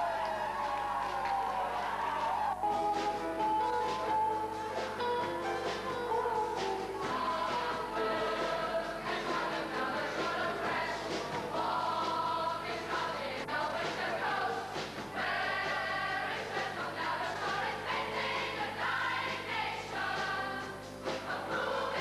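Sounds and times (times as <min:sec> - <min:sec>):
young singers singing in chorus: 0:06.3 - 0:22.0.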